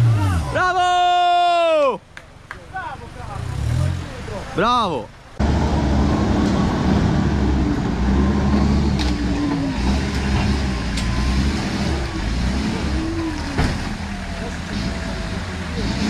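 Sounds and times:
engine running at low revs: 0:05.3 - 0:16.0.

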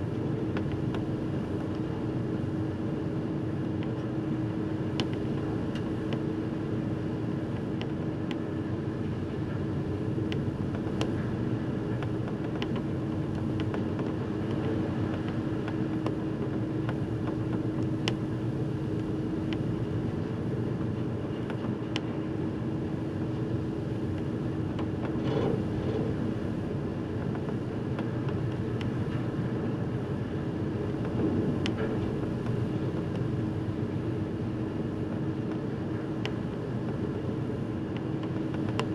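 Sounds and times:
ferry engine rumble: 0:00.0 - 0:38.9.

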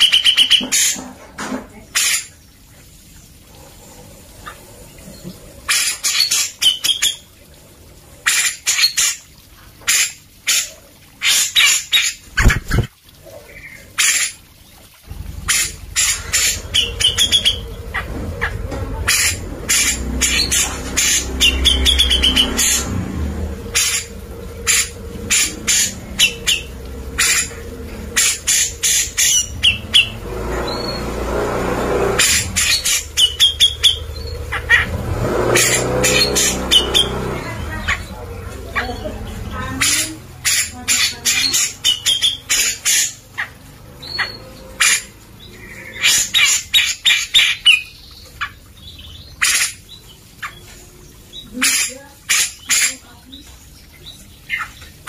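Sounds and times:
low rumble: 0:15.0 - 0:39.8.

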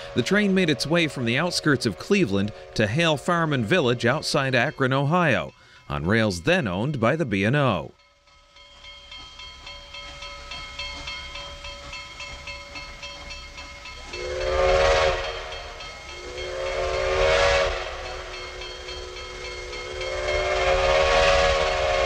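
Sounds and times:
steam whistle blasts: 0:00.0 - 0:04.2, 0:14.1 - 0:22.0
train rumble: 0:00.0 - 0:22.0.

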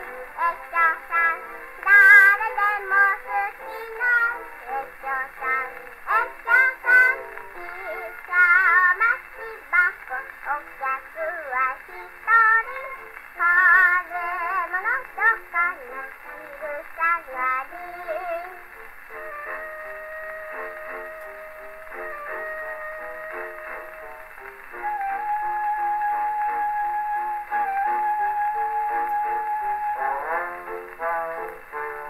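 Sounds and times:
girl singing with vibrato: 0:00.0 - 0:20.0
faint record hiss: 0:00.0 - 0:32.0
band accompaniment: 0:18.7 - 0:32.0.

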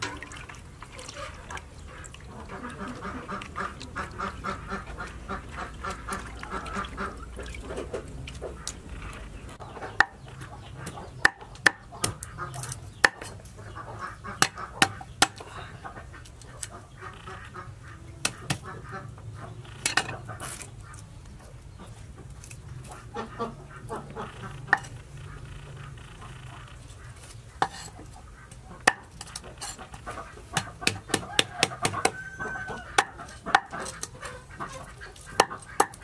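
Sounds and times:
fowl calling: 0:22.8 - 0:36.0.

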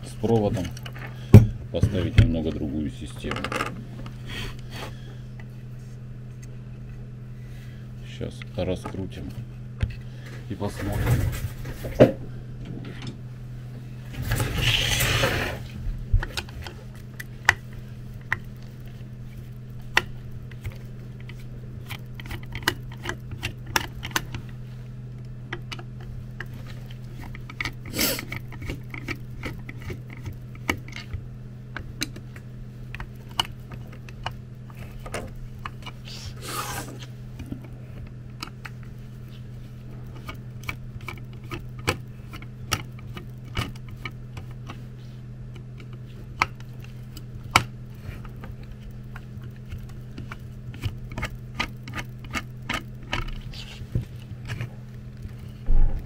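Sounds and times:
steady low hum: 0:00.0 - 0:56.0
screwdriver clicking and scraping: 0:45.5 - 0:55.5.

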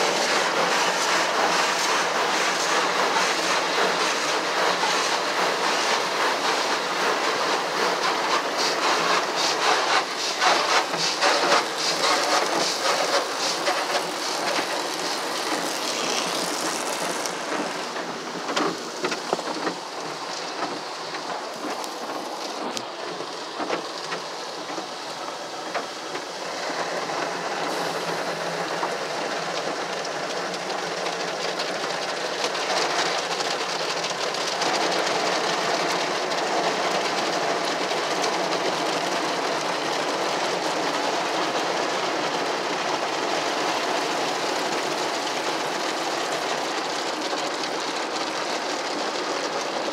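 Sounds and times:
car wash brushes slapping: 0:00.0 - 0:26.3
water spraying: 0:00.0 - 0:49.9.

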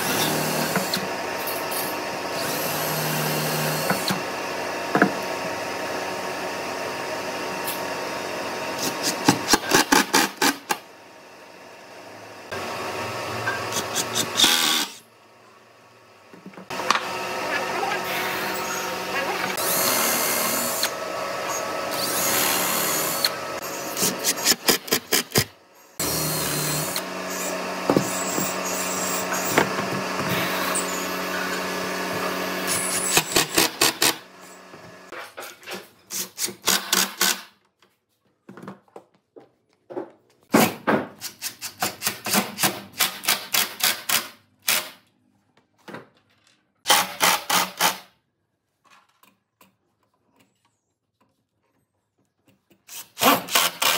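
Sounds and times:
impact driver motor whirring: 0:13.4 - 0:15.0, 0:16.7 - 0:25.4, 0:26.0 - 0:34.8.

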